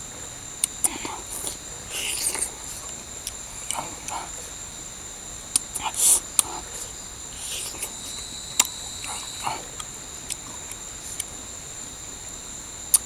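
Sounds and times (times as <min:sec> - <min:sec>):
insect trilling: 0:00.0 - 0:13.0
wet smacks and chewing: 0:00.6 - 0:04.4.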